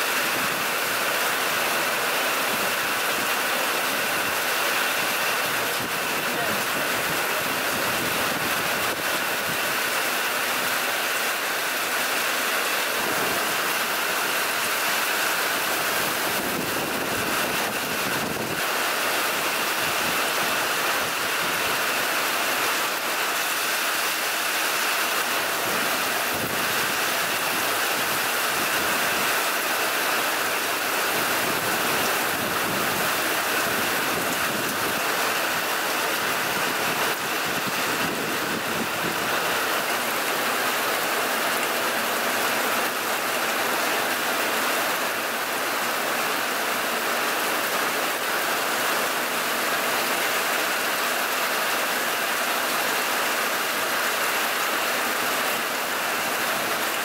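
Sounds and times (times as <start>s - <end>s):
heavy rain on water: 0.0s - 57.0s.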